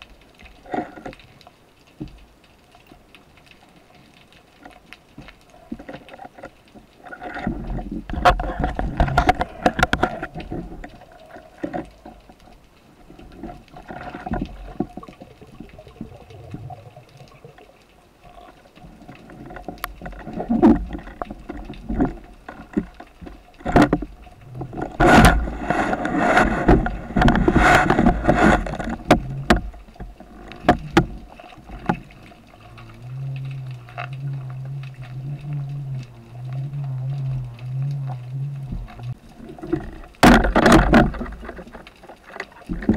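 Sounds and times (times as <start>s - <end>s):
underwater water rushing: 0.0s - 42.9s
sharp clicks and knocks: 19.2s - 36.1s, 38.7s - 42.9s.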